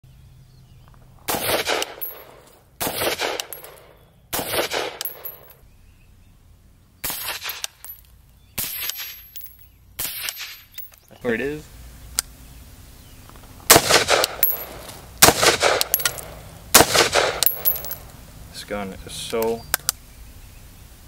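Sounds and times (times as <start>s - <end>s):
gunshot echo: 1.3s - 5.5s, 13.7s - 18.0s
suppressed rifle shots: 1.3s - 5.5s, 13.7s - 18.0s.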